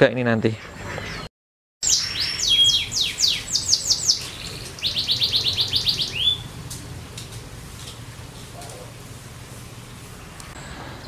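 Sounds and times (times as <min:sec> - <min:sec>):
canary singing: 0:00.7 - 0:07.6.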